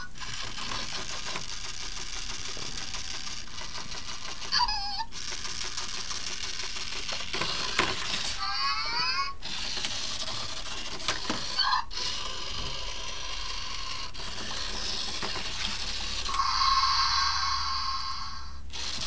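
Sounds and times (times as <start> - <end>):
toy motor whirring: 0.0 - 19.0.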